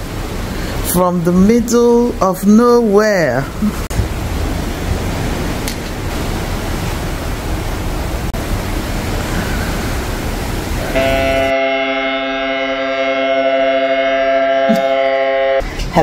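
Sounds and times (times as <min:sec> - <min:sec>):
ship wake churning: 0:00.0 - 0:16.0
wind noise on microphone: 0:03.5 - 0:11.5
held music chord: 0:10.9 - 0:15.6.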